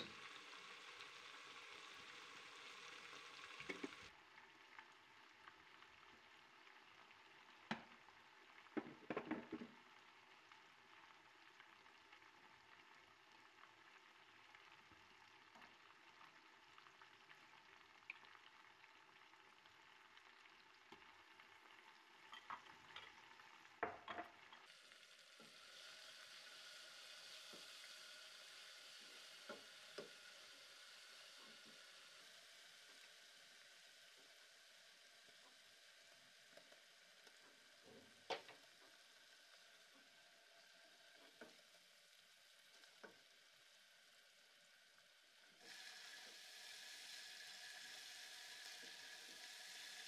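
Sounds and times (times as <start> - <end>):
onions sizzling in oil: 0.0 - 50.0.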